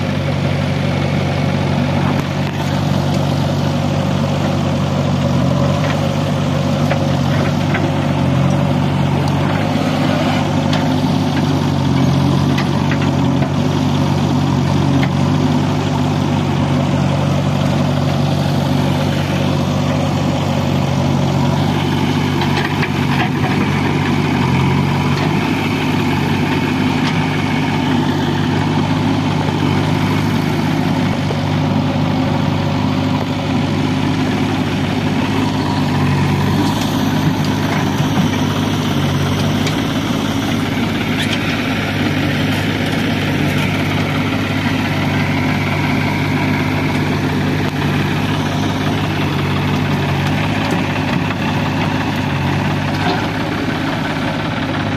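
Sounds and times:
diesel engines running: 0.0 - 54.9.

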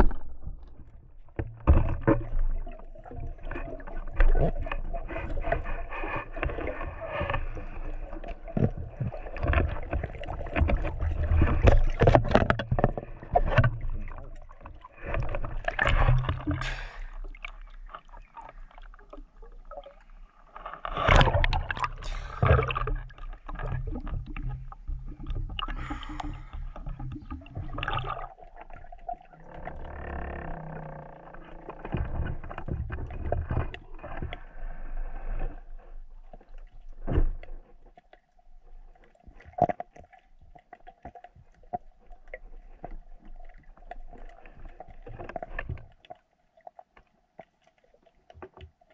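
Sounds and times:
underwater water rushing: 0.0 - 37.6.

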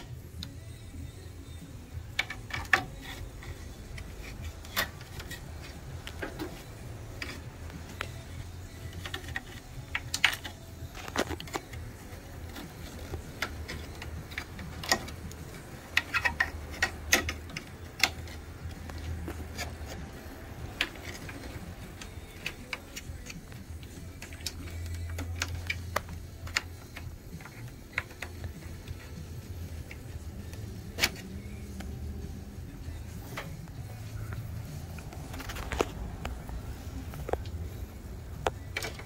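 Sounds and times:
steady low hum: 0.0 - 39.0
clicks of plastic and metal parts: 2.0 - 32.0, 38.2 - 39.0.

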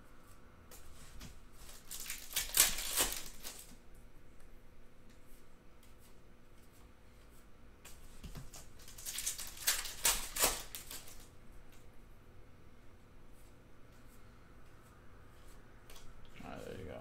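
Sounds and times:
foil wrapper crinkling and tearing: 1.6 - 3.7, 8.5 - 11.3.

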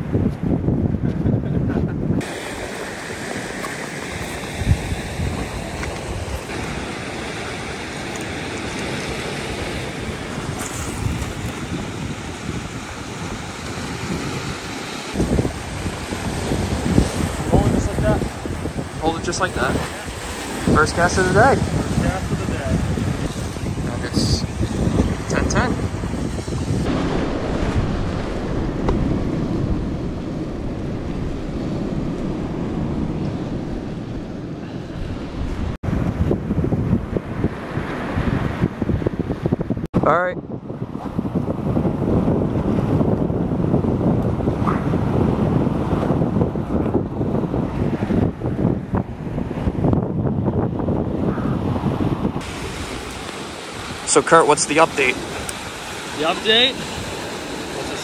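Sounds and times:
wind buffeting microphone: 0.0 - 58.0
waves washing over rocky shore: 2.2 - 26.0, 52.4 - 58.0.

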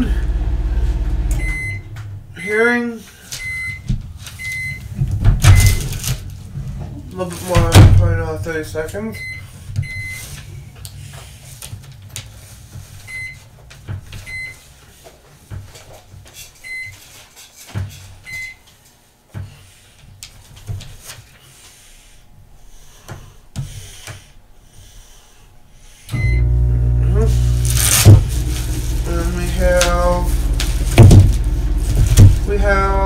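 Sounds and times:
microwave oven humming: 0.0 - 2.8, 26.1 - 33.0.

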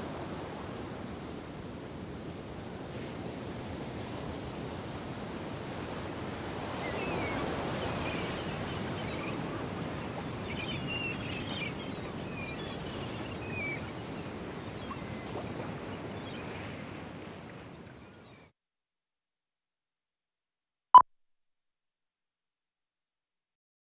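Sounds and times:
sea waves washing: 2.6 - 17.9
faint high chirping calls: 6.8 - 15.6.

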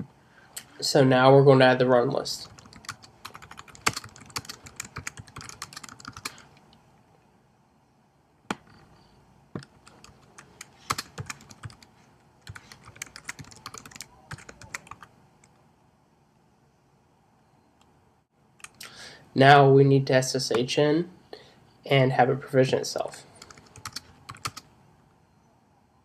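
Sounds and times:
typing on computer keyboard: 2.4 - 6.4, 9.6 - 15.1, 23.4 - 24.7.

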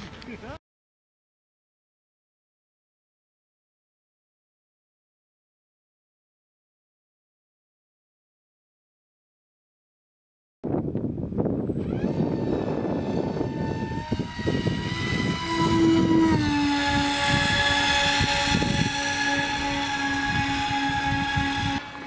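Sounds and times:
electric motor and propeller whine: 10.7 - 22.0.

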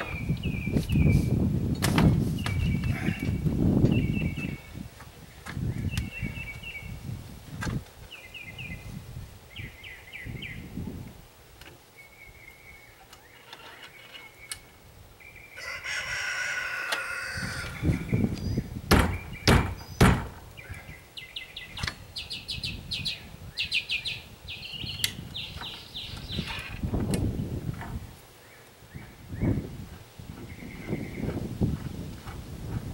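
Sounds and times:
birds chirping: 0.0 - 1.5, 2.3 - 7.1, 8.0 - 10.8, 11.8 - 31.9
rooster crowing: 15.6 - 18.1
dull thumps on wooden stand: 18.9 - 20.4
sharp knocks: 18.9 - 20.4.

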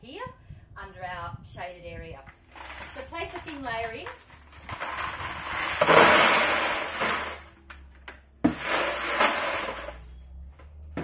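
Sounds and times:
rocks pouring into plastic crate: 2.5 - 7.6, 8.5 - 10.0.

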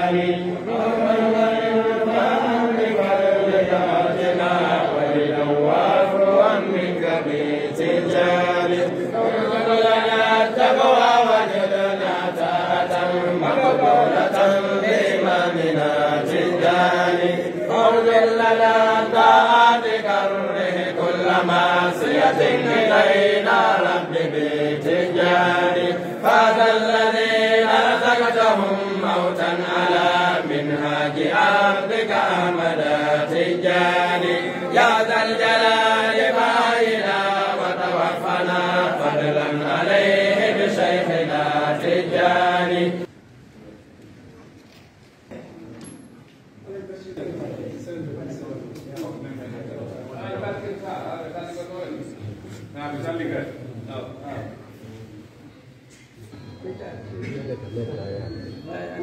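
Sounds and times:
men chanting in unison: 0.0 - 43.1.

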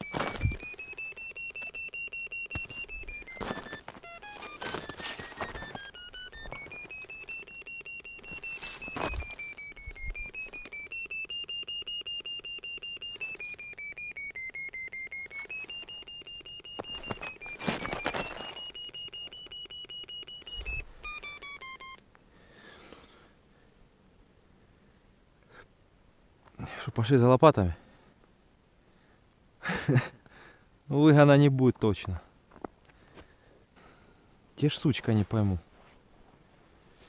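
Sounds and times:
locator receiver beeping: 0.0 - 22.0
handling rustles: 2.6 - 10.8, 15.2 - 19.3.

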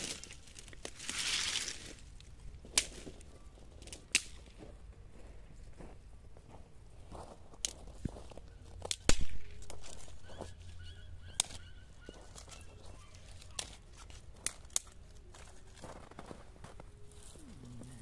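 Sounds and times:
clicks and crunches on snow: 0.0 - 4.7, 11.4 - 18.0
faint animal call: 9.8 - 13.8, 17.0 - 18.0.

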